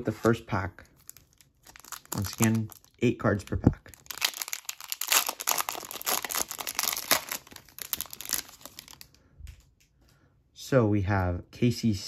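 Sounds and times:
foil wrapper tearing and crinkling: 0.1 - 3.0, 3.9 - 9.1.

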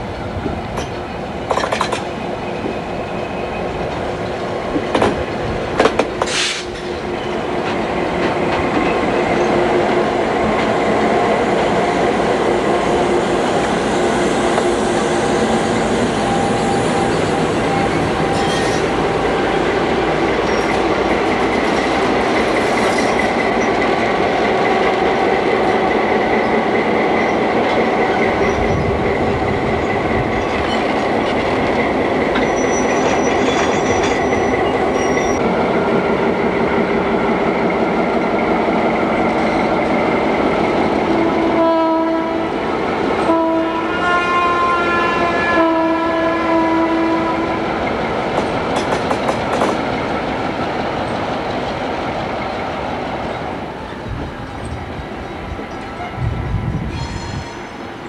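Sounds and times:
diesel locomotive engines running: 0.0 - 58.0
wheels clicking over rail joints: 0.7 - 2.2, 47.8 - 54.8
locomotive horn blasts: 41.4 - 42.5, 43.2 - 47.6.

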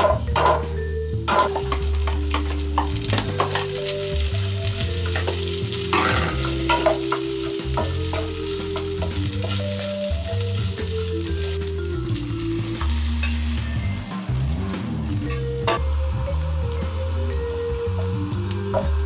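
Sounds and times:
spatula scraping and tapping pan: 0.0 - 13.8
food sizzling in a pan: 0.0 - 19.0.

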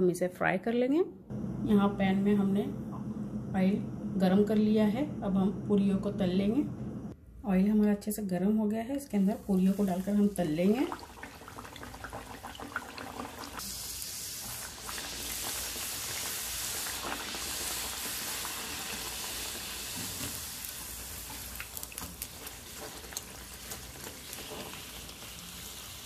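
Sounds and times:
food sizzling in hot oil: 9.3 - 26.0.

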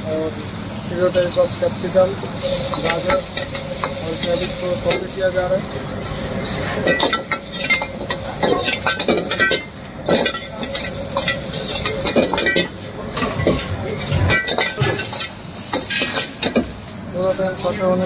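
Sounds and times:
food sizzling: 0.0 - 18.0
ladle clanking against a wok: 2.4 - 5.4, 6.1 - 16.9.

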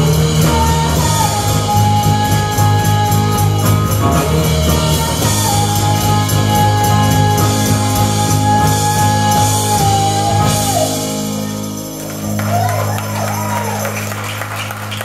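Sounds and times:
women singing: 0.0 - 11.6
live rock band: 0.0 - 15.0.

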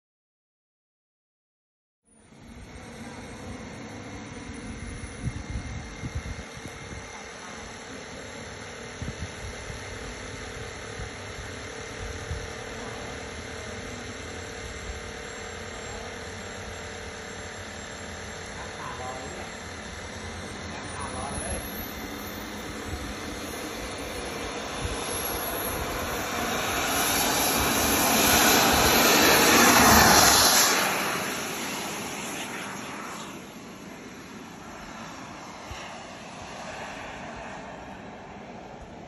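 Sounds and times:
model jet turbine whine: 2.1 - 39.0
wind buffeting microphone: 4.6 - 7.3, 8.8 - 12.8.

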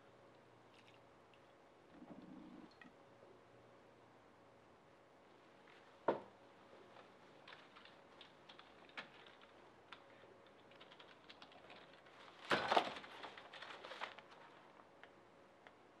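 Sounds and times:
computer keyboard typing: 7.4 - 12.1
keyboard clatter: 7.4 - 14.2.

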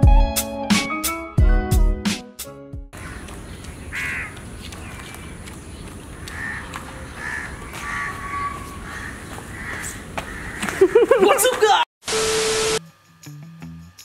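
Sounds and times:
crows cawing: 3.0 - 5.4, 6.1 - 11.0.

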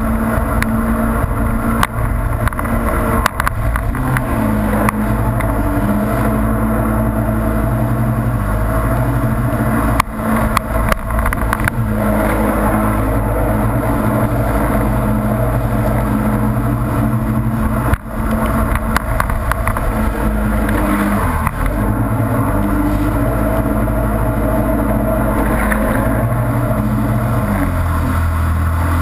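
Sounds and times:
jet ski engine running: 0.0 - 29.0
rushing water spray: 0.0 - 29.0
wind on microphone: 0.0 - 29.0.

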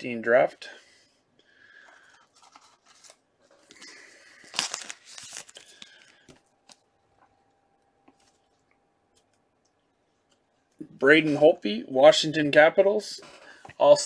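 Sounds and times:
wrapper tearing and rustling: 2.3 - 6.8.

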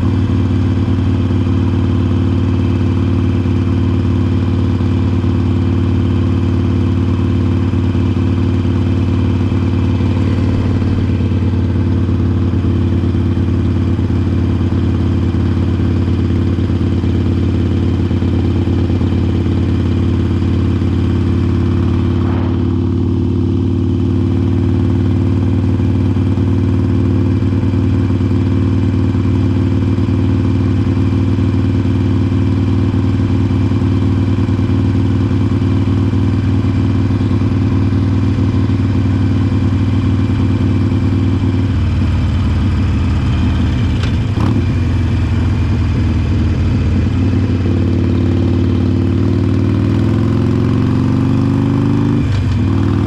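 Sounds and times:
motorcycle engine running: 0.0 - 53.0.

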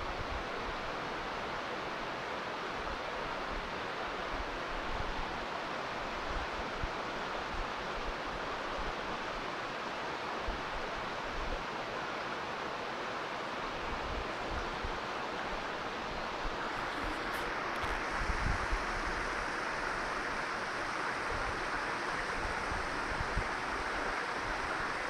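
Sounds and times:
mountain stream rushing: 0.0 - 25.0
wind rumbling on microphone: 13.9 - 25.0.

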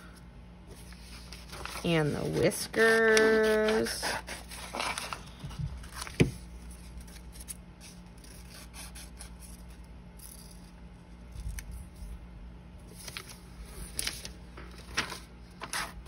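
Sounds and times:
paper rustling: 0.7 - 9.7, 12.9 - 16.0
scissors cutting paper: 1.5 - 5.2.

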